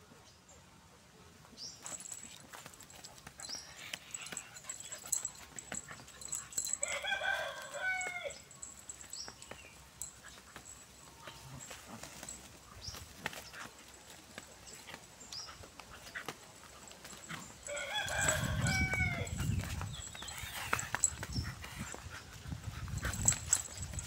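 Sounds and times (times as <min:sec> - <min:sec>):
rooster crowing: 0:06.8 - 0:08.4, 0:17.7 - 0:19.3.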